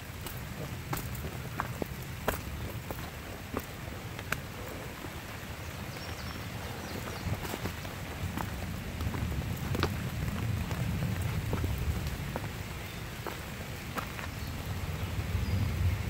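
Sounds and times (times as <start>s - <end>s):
rain falling on foliage: 0.0s - 16.0s
steady low rumble: 6.3s - 16.0s.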